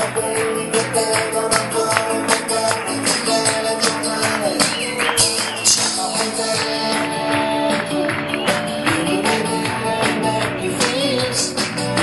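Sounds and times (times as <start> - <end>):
men singing: 0.0 - 8.1, 8.8 - 12.0.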